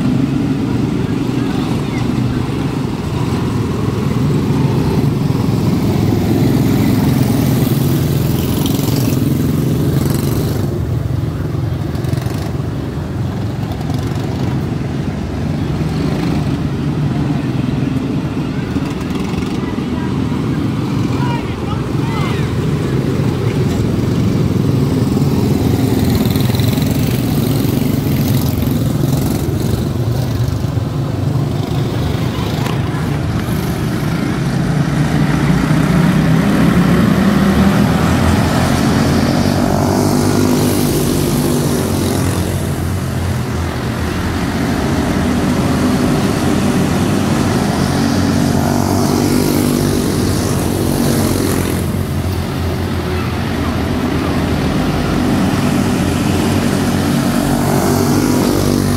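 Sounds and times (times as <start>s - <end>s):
small race car engines buzzing: 0.0s - 58.9s.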